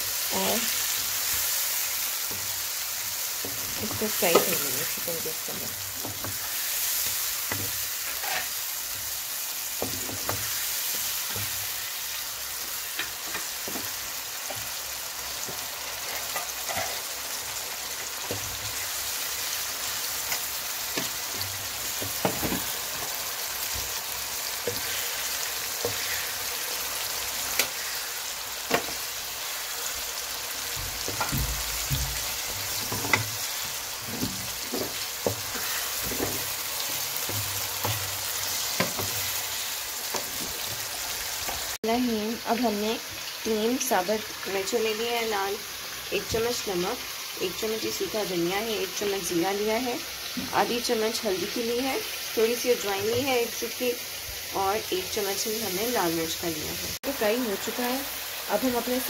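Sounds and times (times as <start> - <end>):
chicken and onions sizzling in oil: 0.0 - 59.0
wooden spatula scraping pan: 3.5 - 8.6, 31.0 - 41.6.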